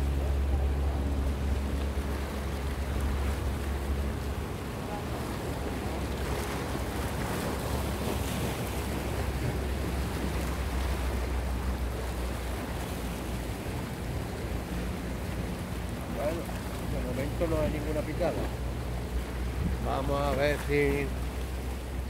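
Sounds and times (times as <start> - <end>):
motorboat drone: 0.0 - 22.0
wind buffeting microphone: 18.6 - 19.9.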